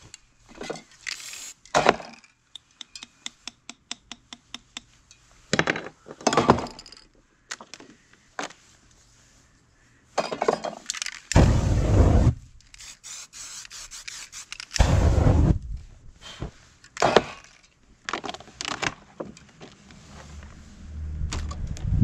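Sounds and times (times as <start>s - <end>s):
aerosol spray bursts: 1.2s - 1.6s, 11.4s - 15.5s
flame whoosh: 11.4s - 12.5s, 14.8s - 15.9s.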